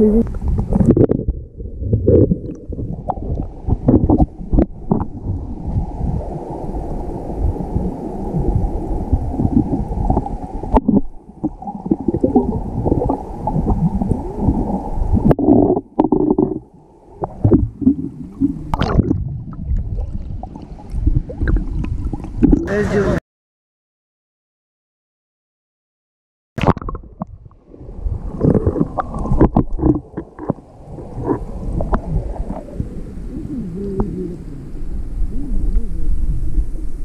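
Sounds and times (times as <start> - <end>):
underwater river rushing and gurgling: 0.0 - 23.2, 26.6 - 37.0
sharp underwater knocks: 2.0 - 5.1, 26.6 - 27.4.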